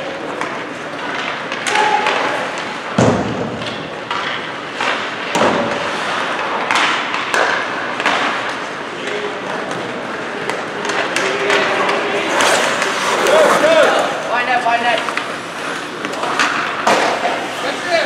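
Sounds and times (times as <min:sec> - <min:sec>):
skates scraping ice: 0:00.0 - 0:18.0
crowd hubbub: 0:07.8 - 0:18.0.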